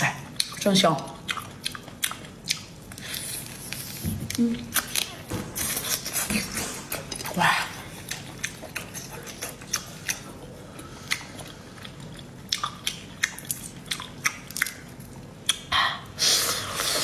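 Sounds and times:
chewing: 0.0 - 15.7.

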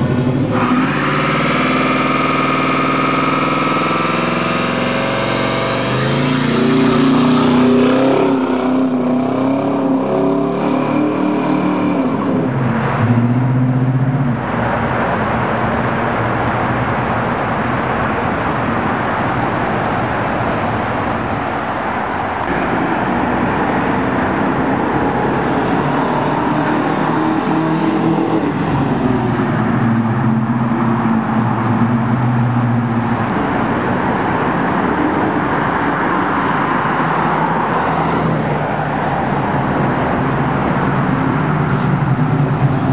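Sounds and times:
car engine with loud exhaust: 0.0 - 42.9.

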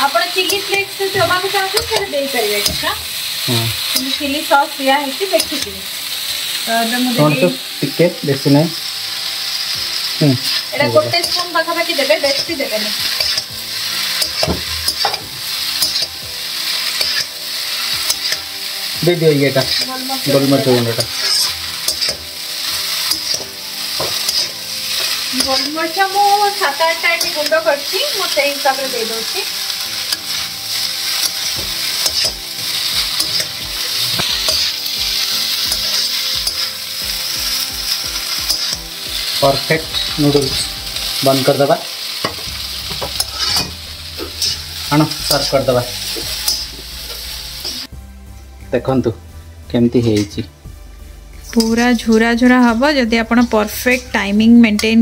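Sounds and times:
noodles sizzling in oil: 0.0 - 55.0
utensil scraping iron pan: 12.2 - 18.5, 19.5 - 26.0, 30.0 - 36.8, 37.9 - 40.8, 42.2 - 46.8.

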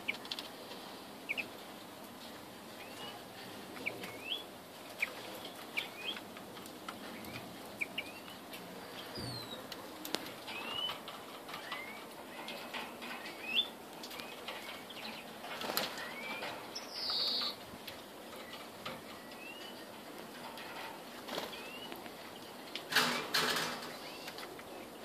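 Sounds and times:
finches calling: 1.3 - 1.5, 13.2 - 17.6.

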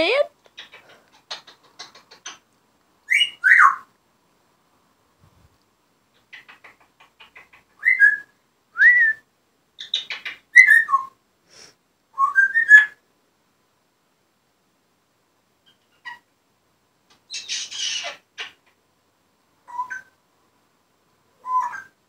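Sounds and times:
parrot whistling and chattering: 0.6 - 2.4, 3.1 - 3.9, 6.2 - 9.0, 9.8 - 11.2, 17.3 - 18.7, 19.7 - 20.1, 21.4 - 22.0.

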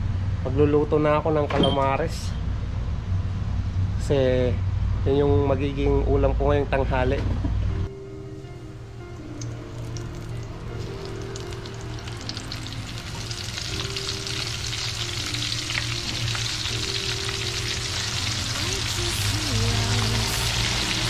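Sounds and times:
squid frying in hot oil: 9.0 - 21.0.

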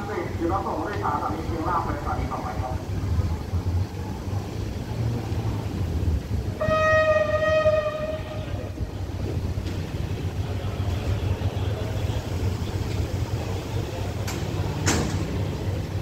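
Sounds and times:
low rumble of train: 0.0 - 16.0
locomotive horn blast: 6.6 - 8.8.

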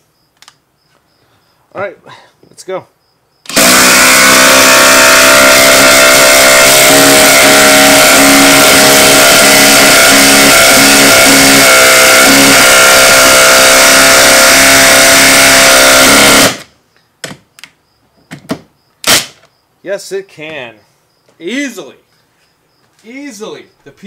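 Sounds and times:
impact driver hammering screw into wood: 3.5 - 12.5, 13.8 - 17.4, 18.3 - 19.4.

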